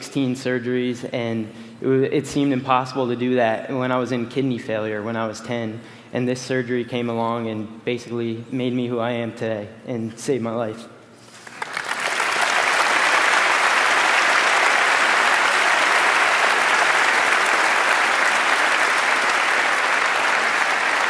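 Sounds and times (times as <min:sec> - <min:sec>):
large audience applauding: 0:11.4 - 0:21.0.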